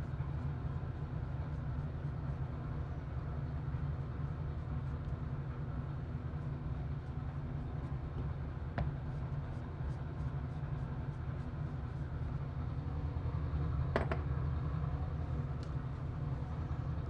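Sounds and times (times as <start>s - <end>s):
ventilation fan humming: 0.0s - 17.0s.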